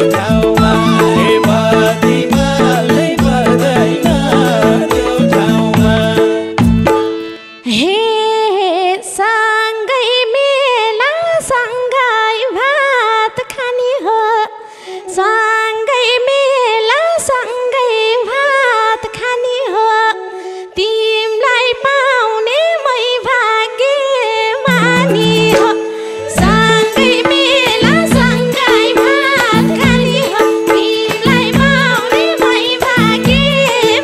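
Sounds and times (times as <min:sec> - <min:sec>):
woman singing slow melody: 0:00.0 - 0:05.5, 0:15.1 - 0:34.0
band with hand drums: 0:00.0 - 0:07.2, 0:24.7 - 0:34.0.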